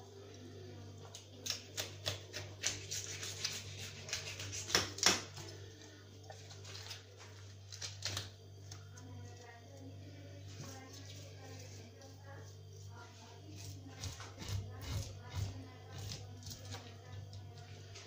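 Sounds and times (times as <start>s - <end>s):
knife scraping fish scales: 1.8s - 4.9s, 13.6s - 16.8s.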